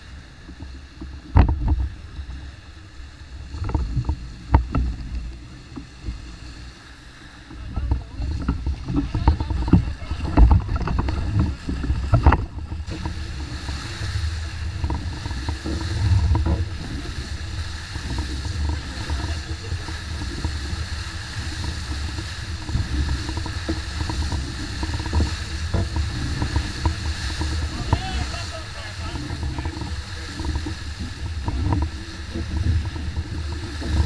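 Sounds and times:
water rushing off hull: 0.0s - 34.0s
knocks on boat: 0.4s - 2.4s, 3.5s - 6.5s, 7.4s - 34.0s
wind buffeting microphone: 7.4s - 34.0s.

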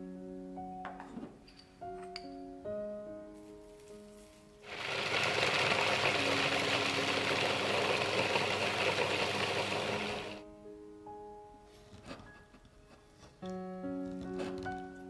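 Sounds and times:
soft background music: 0.0s - 4.8s, 5.5s - 15.0s
food processor grinding nuts: 4.6s - 10.4s.

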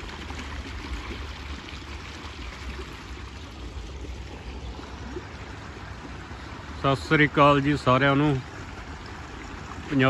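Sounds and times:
water gushing and splashing: 0.0s - 10.0s.

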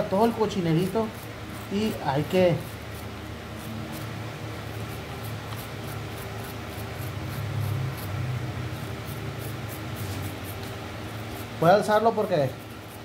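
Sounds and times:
wire brush scratching: 0.0s - 13.0s.

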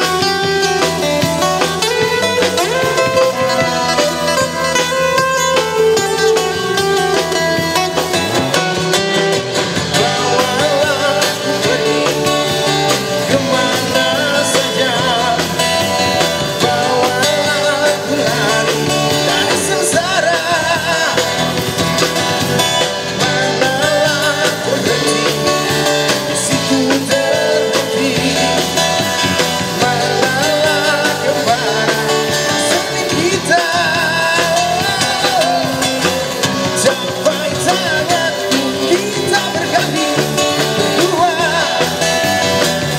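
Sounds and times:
rock band playing: 0.0s - 42.9s
man singing into microphone: 9.8s - 21.7s, 23.0s - 42.6s.

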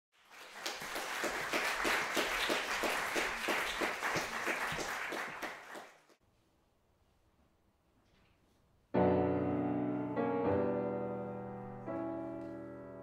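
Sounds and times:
audience applauding: 0.1s - 6.2s.

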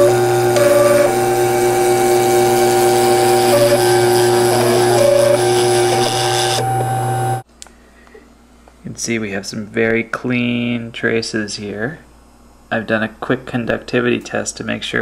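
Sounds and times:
spindle hum: 0.0s - 7.4s
stepper motor whine: 0.0s - 7.4s.

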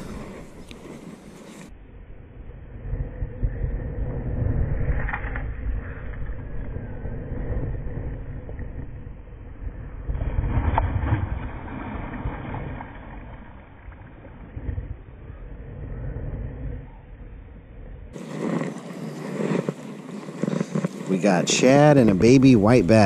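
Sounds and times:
heavy low rumble: 0.0s - 23.0s
water splashes: 10.1s - 14.7s.

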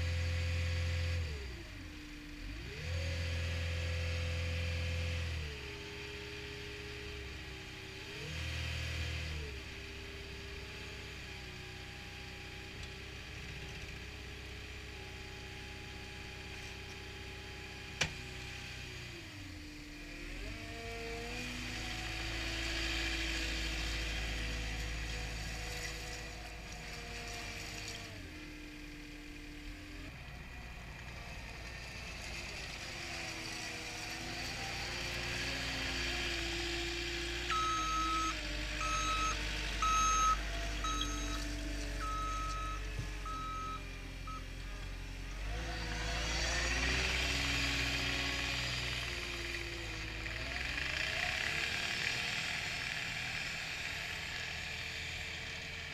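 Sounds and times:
diesel engine revving: 0.0s - 55.9s
reversing alarm beeps: 37.5s - 44.5s.

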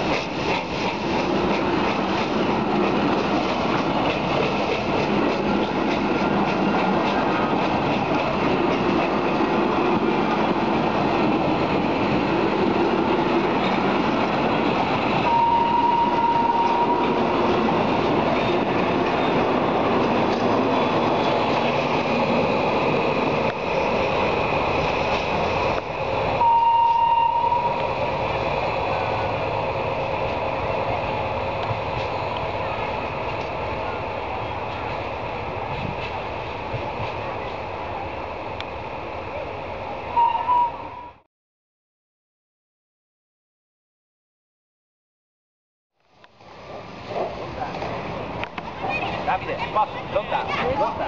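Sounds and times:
high train whistle: 15.2s - 17.2s, 26.4s - 27.9s, 40.1s - 41.2s.

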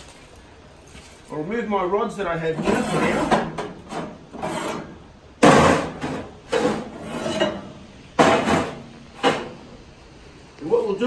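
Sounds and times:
metal rods scraping and knocking: 2.6s - 9.6s.

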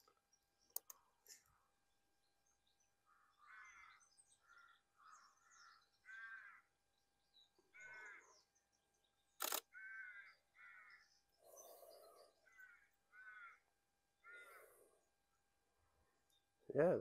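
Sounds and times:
crows cawing: 3.0s - 6.8s, 7.7s - 8.4s, 9.7s - 11.2s, 12.4s - 14.9s
camera shutter click: 9.4s - 9.7s.

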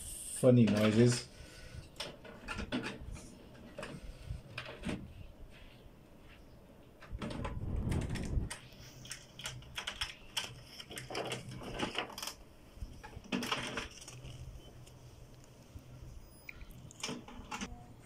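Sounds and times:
inkjet printer clicking and clattering: 7.2s - 12.4s, 13.0s - 14.4s.

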